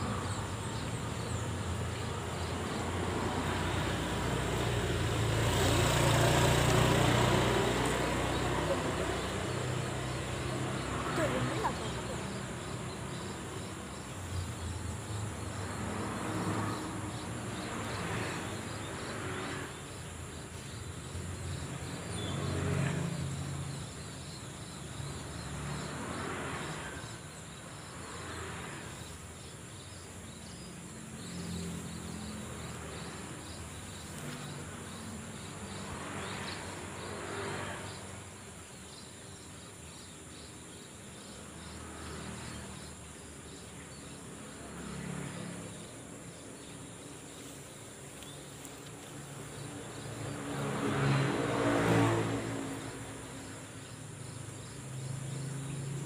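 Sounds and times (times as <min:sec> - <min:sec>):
insect chorus: 0:00.0 - 0:56.0.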